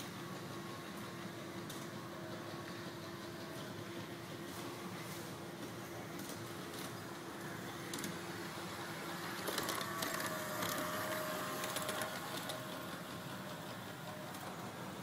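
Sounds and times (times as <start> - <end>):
wheels clicking on track: 5.7 - 15.0
model train motor whine: 6.6 - 15.0.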